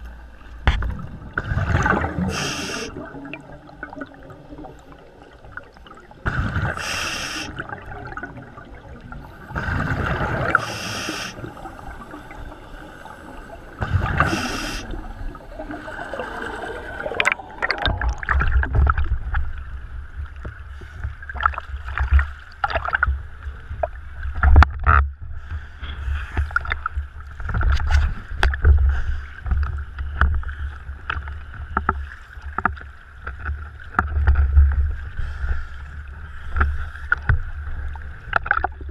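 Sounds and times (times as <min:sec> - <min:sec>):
waves splashing against camera: 0:00.6 - 0:19.5
bubbles rushing: 0:00.9 - 0:19.3
scuba breathing through regulator: 0:02.2 - 0:03.1, 0:06.3 - 0:07.7, 0:09.6 - 0:15.1.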